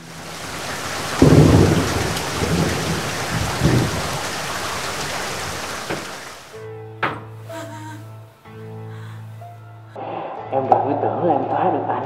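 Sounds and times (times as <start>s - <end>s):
thunder rumbling: 0.0s - 6.4s
heavy rain: 0.0s - 6.5s.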